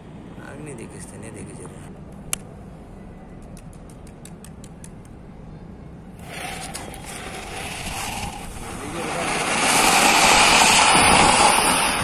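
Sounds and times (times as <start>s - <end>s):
firework sparks hissing: 6.2s - 12.0s
fuse sputtering and crackling: 6.2s - 12.0s.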